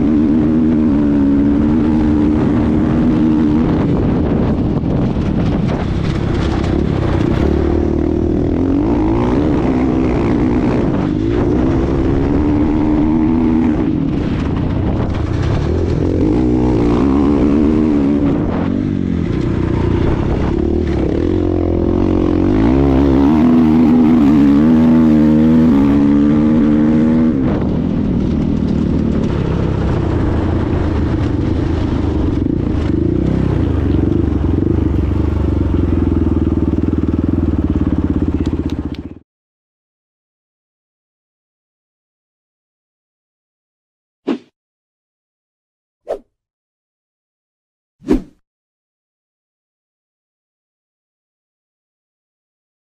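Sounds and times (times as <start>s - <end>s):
dirt bike engine revving: 0.0s - 39.1s.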